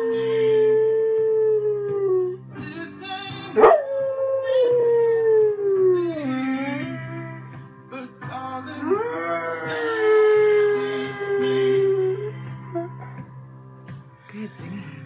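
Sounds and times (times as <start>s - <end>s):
dog howling: 0.0s - 2.4s, 3.6s - 7.2s, 8.8s - 13.0s
music: 0.0s - 15.0s.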